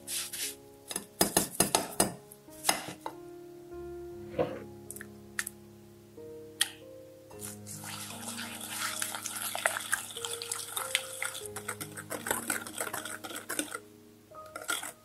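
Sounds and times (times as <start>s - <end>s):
whisk beating in a ceramic bowl: 7.9s - 13.8s, 14.6s - 15.0s.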